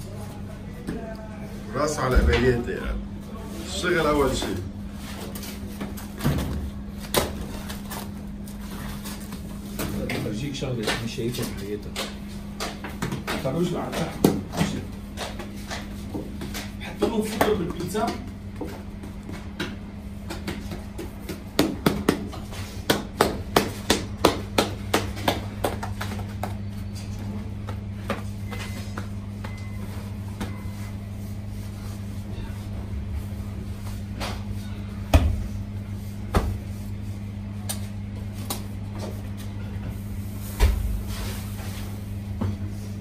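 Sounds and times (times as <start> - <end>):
steady low hum: 0.0 - 43.0
hands slapping dough: 11.9 - 26.7, 37.6 - 39.1.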